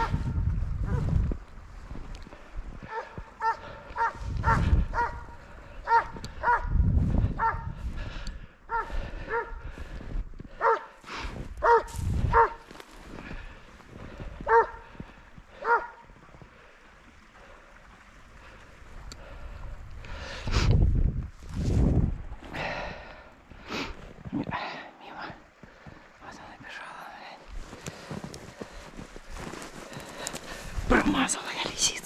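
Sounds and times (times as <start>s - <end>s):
hound baying with yelping barks: 2.9s - 6.7s, 7.4s - 7.7s, 8.7s - 9.6s, 10.6s - 10.9s, 11.6s - 12.6s, 14.4s - 14.8s, 15.6s - 16.0s.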